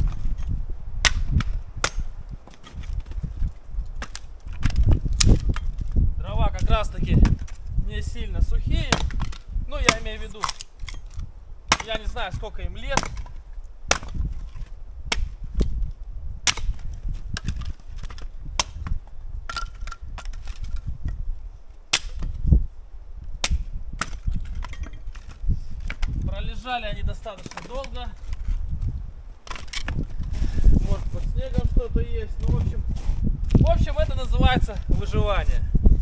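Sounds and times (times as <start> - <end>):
axe splitting firewood: 0.0 - 7.7, 8.7 - 21.2, 21.9 - 22.5, 23.3 - 26.4, 27.2 - 28.8, 29.4 - 30.4.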